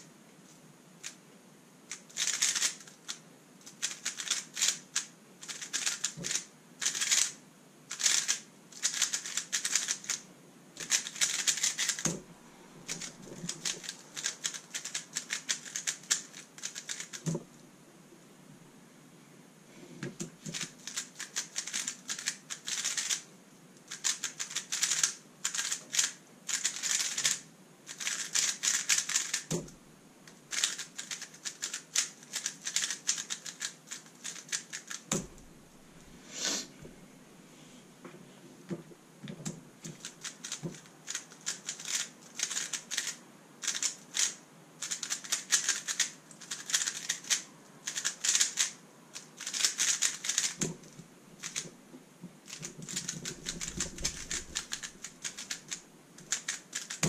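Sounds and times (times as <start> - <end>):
plastic puzzle cube clicking: 1.9 - 10.2, 10.8 - 12.1, 12.9 - 17.3, 20.5 - 23.2, 23.9 - 29.5, 30.5 - 35.1, 39.8 - 50.7, 51.4 - 51.6, 52.5 - 57.0.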